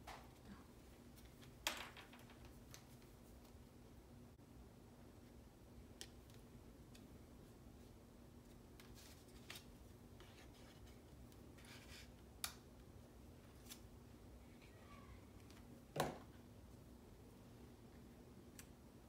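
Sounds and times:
paper rustling: 8.4s - 12.1s.

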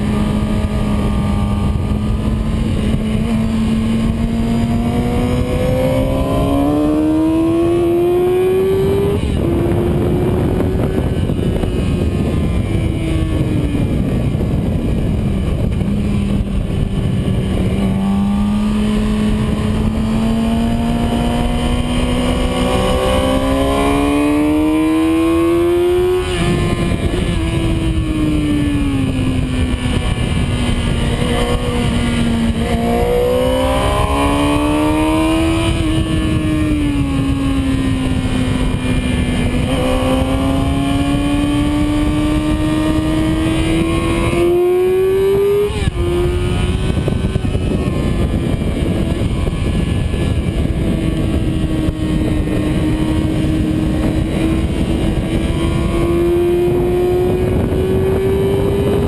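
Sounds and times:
motorcycle engine at high revs: 0.0s - 59.0s
wind rush on microphone: 0.0s - 59.0s.

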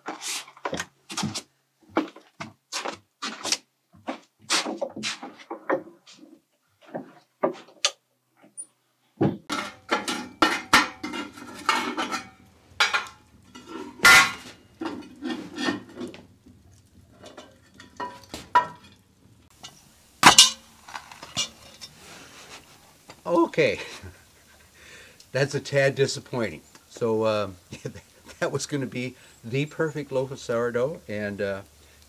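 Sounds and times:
cast iron pot and lid clanking: 9.5s - 22.0s.

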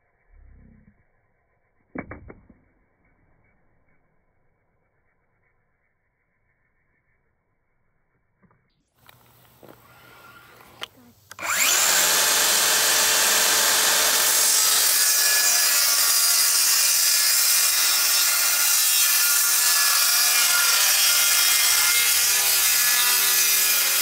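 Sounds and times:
circular saw cutting plywood: 9.8s - 24.0s.

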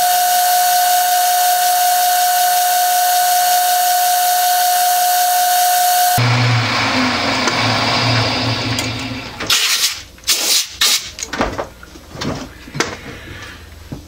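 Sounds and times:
lathe humming: 0.0s - 9.5s.

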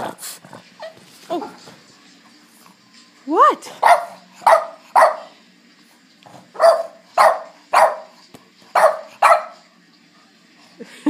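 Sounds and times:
dog barking: 3.8s - 5.4s, 6.5s - 9.6s.

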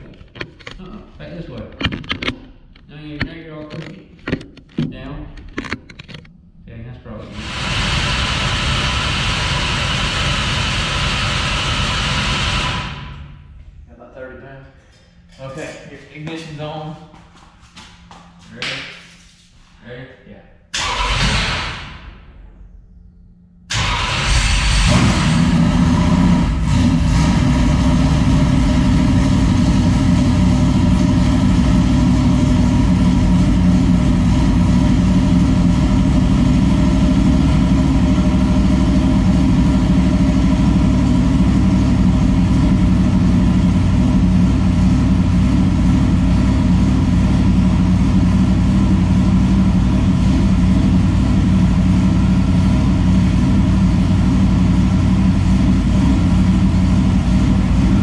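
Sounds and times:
race car engine idling: 24.2s - 58.0s.

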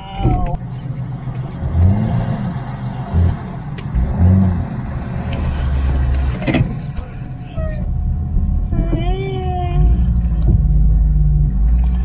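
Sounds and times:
engine rumbling and revving: 0.0s - 12.0s.

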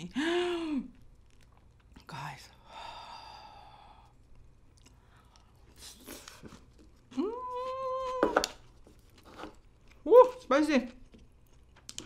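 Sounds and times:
woman chewing food: 0.9s - 2.0s, 4.0s - 7.7s, 10.9s - 12.0s.

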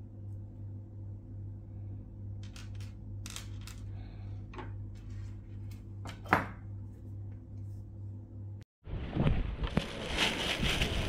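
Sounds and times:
steady low hum: 0.0s - 9.6s.

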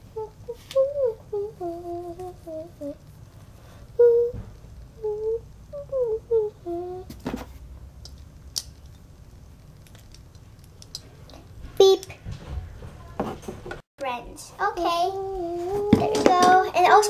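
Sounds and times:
child humming: 0.0s - 3.0s, 5.0s - 7.1s, 15.1s - 16.3s.

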